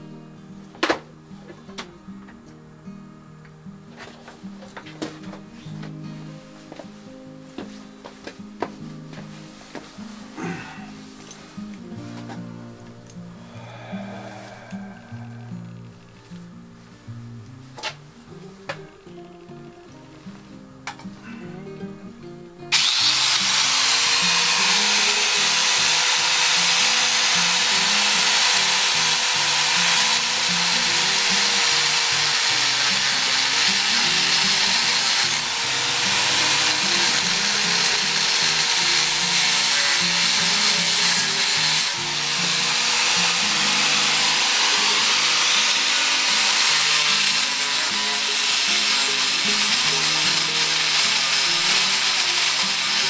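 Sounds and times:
angle grinder grinding metal: 22.7s - 53.0s.

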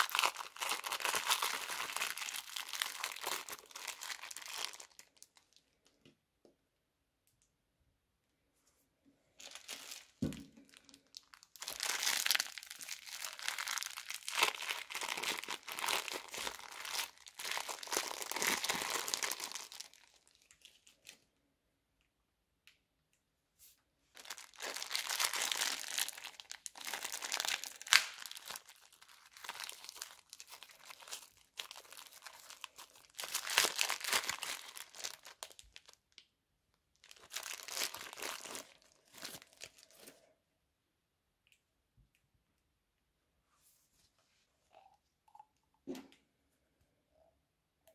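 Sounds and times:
plastic bags crinkling: 0.0s - 5.8s, 9.4s - 21.2s, 24.1s - 36.1s, 37.0s - 40.2s.

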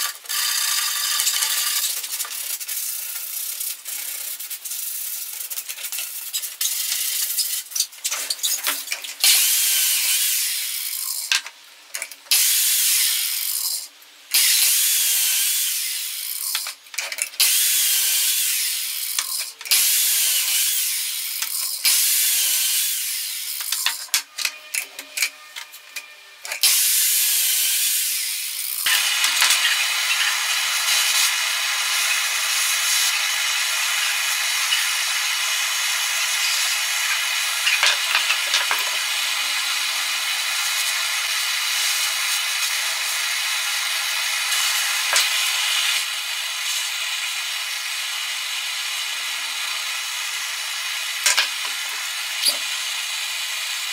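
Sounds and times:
power tool bursts: 0.0s - 11.3s, 12.3s - 16.7s, 17.4s - 24.9s, 26.6s - 53.9s
blowtorch hissing: 28.8s - 39.6s.

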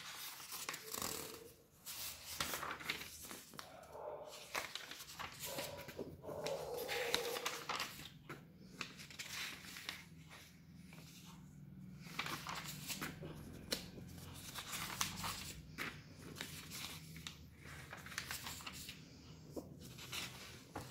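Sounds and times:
magazine pages turning: 0.0s - 20.9s.

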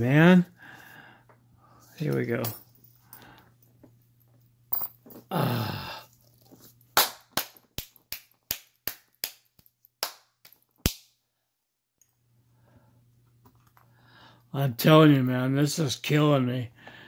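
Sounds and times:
person sighing: 5.2s - 6.2s.

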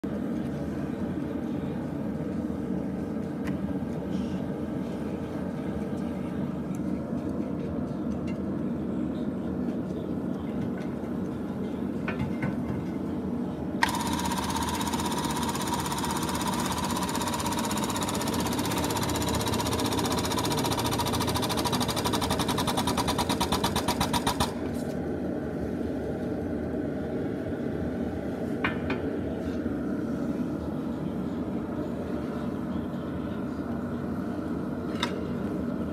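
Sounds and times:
hydraulic pump hissing and whining: 13.8s - 24.6s.

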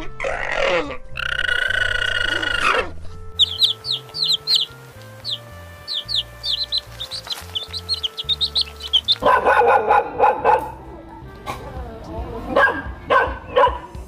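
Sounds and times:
faint background music: 0.0s - 14.0s
alpaca call: 0.2s - 9.3s
chicks peeping: 3.4s - 9.4s
dog barking: 9.2s - 10.8s, 12.5s - 13.9s.

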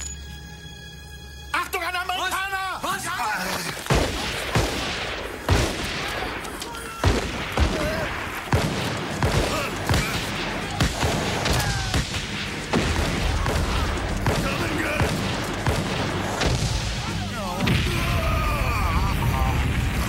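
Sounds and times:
rifle shots and blasts: 3.9s - 18.7s.

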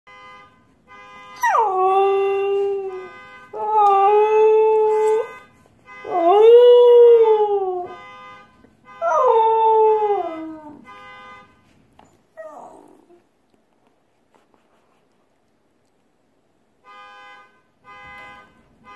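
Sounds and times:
faint car alarm tone: 0.1s - 11.8s, 16.8s - 18.9s.

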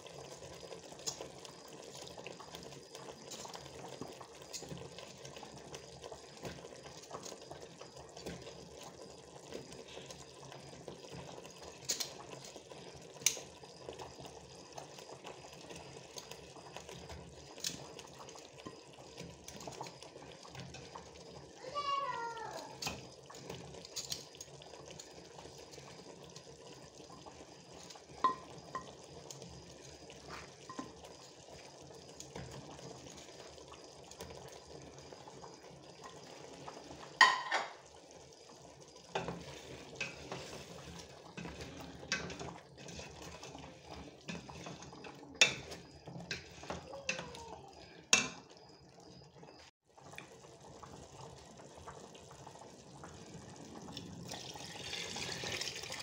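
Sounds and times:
stew simmering: 0.0s - 56.0s
metal cookware clinking: 28.2s - 28.5s, 37.2s - 37.8s, 41.4s - 43.3s, 44.3s - 46.5s, 48.1s - 48.4s.

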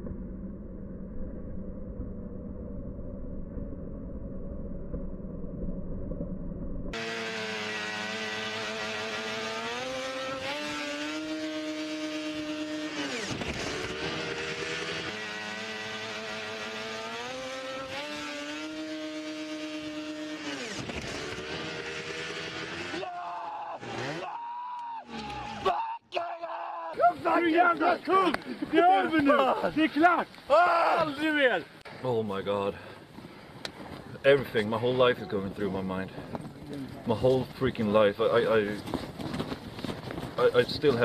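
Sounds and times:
low rumble: 0.0s - 7.0s
snowmobile engine revving: 6.9s - 31.7s.

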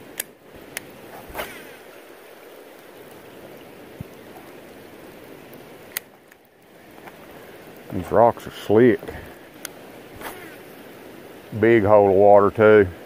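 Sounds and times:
rain on a river: 0.0s - 13.0s.

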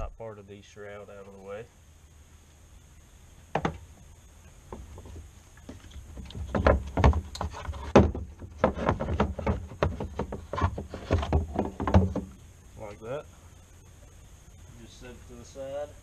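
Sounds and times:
clunks and rattles: 4.7s - 12.4s
plastic shroud knocking and scraping: 4.7s - 12.4s.

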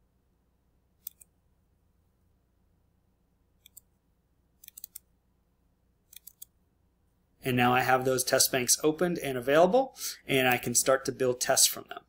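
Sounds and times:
computer mouse clicking: 1.0s - 1.4s, 3.6s - 4.0s, 4.6s - 5.1s, 6.1s - 6.6s.

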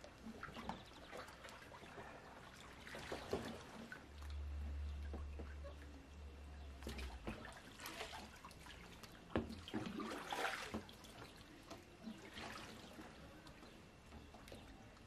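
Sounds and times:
water sloshing against kayak hull: 0.0s - 5.9s, 6.7s - 15.0s
low steady hum: 0.0s - 15.0s.

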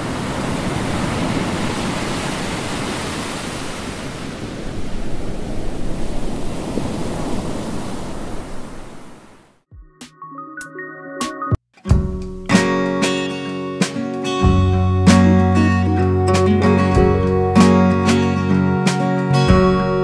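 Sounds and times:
breaking surf: 0.0s - 9.4s.

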